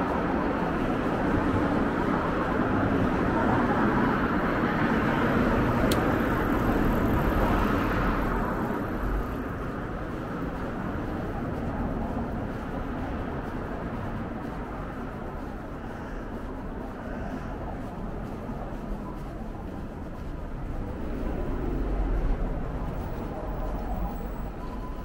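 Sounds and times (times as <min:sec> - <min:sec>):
vehicle passing: 0:19.9 - 0:25.0.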